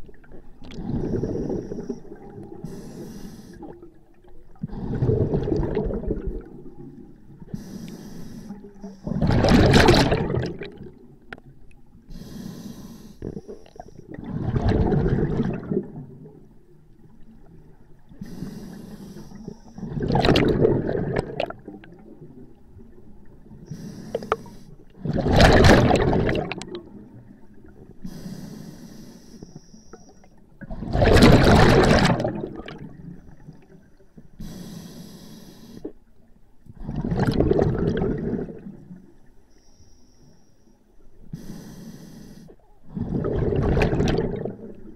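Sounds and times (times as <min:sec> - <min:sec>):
regulator inhalation hiss: 0:02.6 - 0:03.6, 0:07.5 - 0:09.1, 0:12.1 - 0:14.0, 0:18.2 - 0:19.8, 0:23.7 - 0:24.8, 0:28.0 - 0:30.2, 0:34.4 - 0:36.0, 0:39.5 - 0:42.6
exhaled bubbles rushing: 0:04.5 - 0:07.2, 0:09.1 - 0:11.1, 0:14.1 - 0:16.4, 0:19.8 - 0:23.3, 0:25.0 - 0:27.9, 0:30.6 - 0:33.5, 0:36.8 - 0:39.0, 0:42.9 - 0:44.9.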